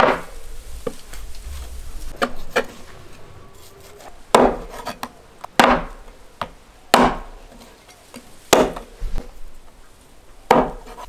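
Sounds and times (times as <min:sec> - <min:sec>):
cleaver chopping on wooden board: 0:04.3 - 0:04.8, 0:05.6 - 0:07.4, 0:08.5 - 0:08.9, 0:10.5 - 0:11.0.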